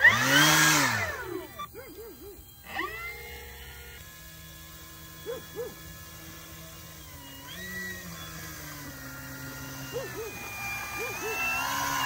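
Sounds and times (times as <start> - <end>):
electric motor and propeller whine: 0.0 - 12.0.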